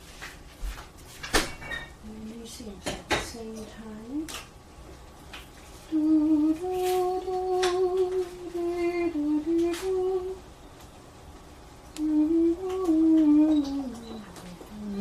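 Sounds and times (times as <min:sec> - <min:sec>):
person humming: 0:05.9 - 0:10.4, 0:12.0 - 0:15.0.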